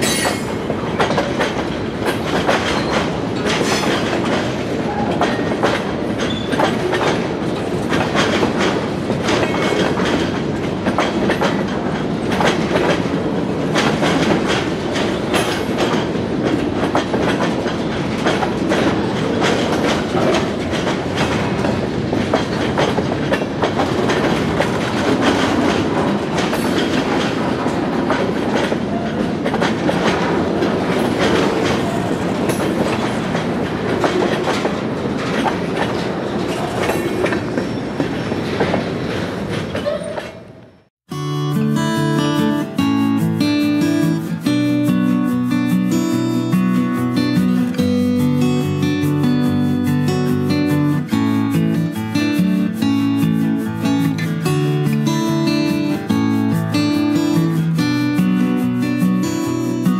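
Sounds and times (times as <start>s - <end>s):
train wheels clicking on rails: 0.0s - 40.7s, 43.0s - 59.9s.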